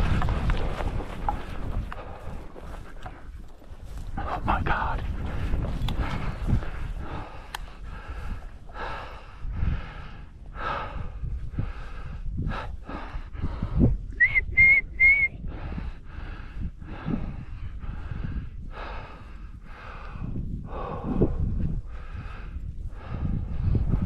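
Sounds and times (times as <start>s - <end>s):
heavy rhythmic breathing: 0.0s - 14.1s, 15.4s - 24.0s
short rising whistle notes: 14.2s - 15.4s.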